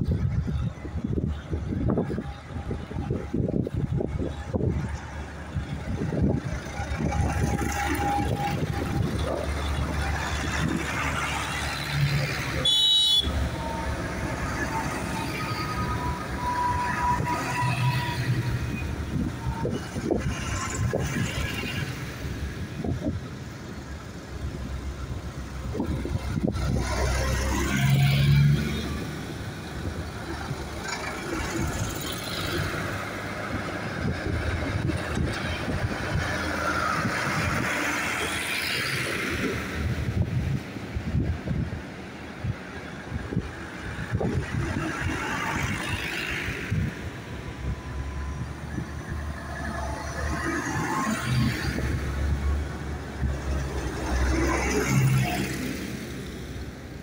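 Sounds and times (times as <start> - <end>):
tractor diesel engines passing: 0.0 - 57.0.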